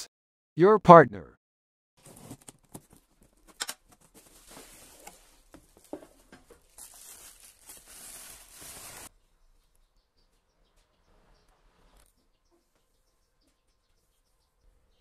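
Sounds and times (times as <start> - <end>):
cardboard and bubble wrap rustling: 2.0 - 9.1
clicks and crinkles of packaging: 2.0 - 9.1.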